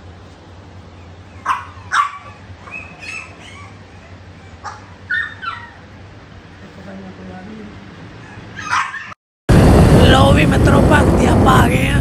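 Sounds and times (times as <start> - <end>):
dog yipping: 1.0 - 6.0, 8.2 - 9.2
dog barking: 1.3 - 5.8, 8.2 - 9.2.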